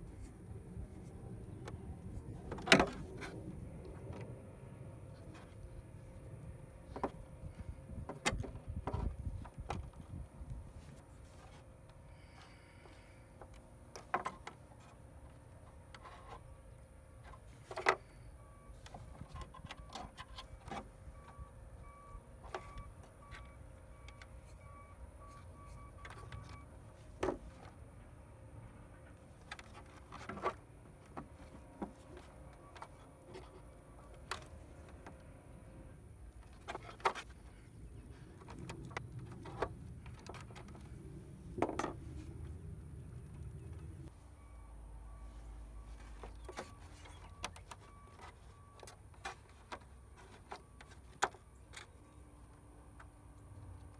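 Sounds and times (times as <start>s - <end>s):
hands handling wires and connectors: 25.2s - 28.0s, 28.6s - 35.3s, 36.2s - 44.0s, 45.3s - 53.9s.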